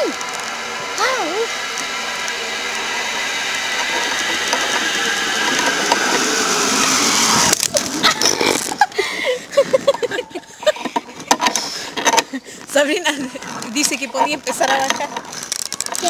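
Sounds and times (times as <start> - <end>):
zip-line pulley whirring: 0.0 - 16.0.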